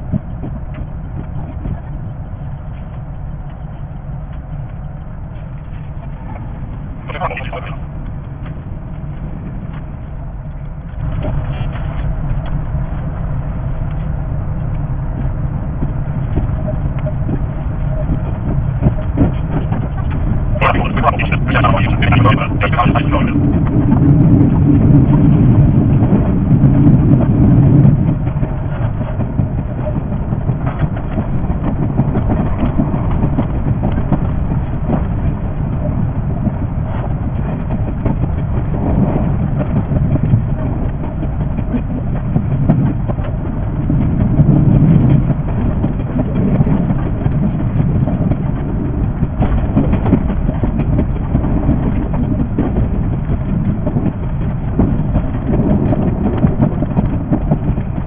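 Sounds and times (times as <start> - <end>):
low train rumble: 0.0 - 58.0
train wheels clattering on rails: 23.5 - 58.0.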